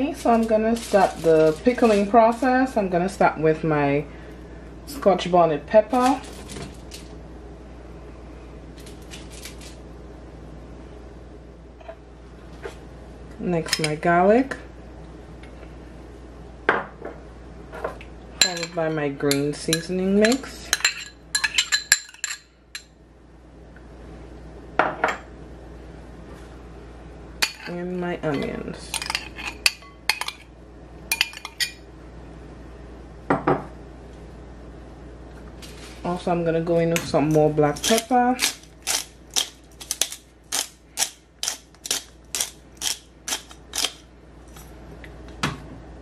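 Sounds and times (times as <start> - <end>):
pepper mill grinding: 0.2 - 2.4, 37.7 - 44.6
clinks against a glass bowl: 18.4 - 19.4, 20.2 - 22.9.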